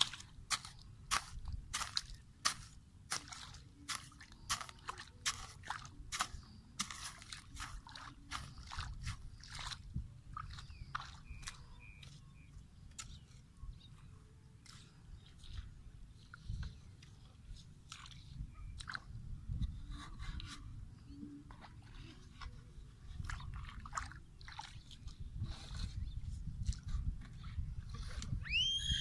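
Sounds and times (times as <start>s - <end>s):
hoe chopping into wet soil: 0.0s - 9.2s.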